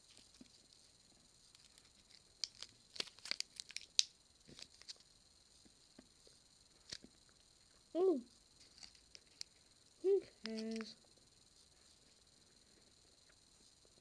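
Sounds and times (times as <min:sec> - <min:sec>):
plastic wrapper crinkling: 0:01.5 - 0:05.0.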